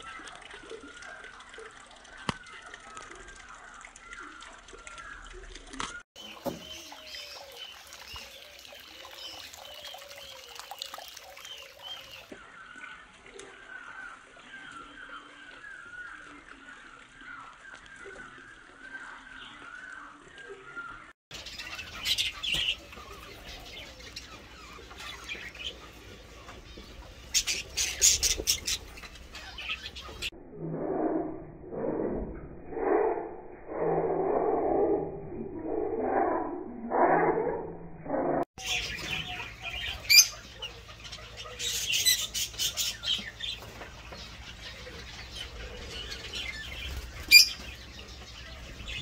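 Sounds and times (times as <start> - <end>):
water trickling: 0.0 - 19.5
birds chirping: 0.0 - 30.4, 34.4 - 49.0
budgerigars chirping: 38.6 - 49.0.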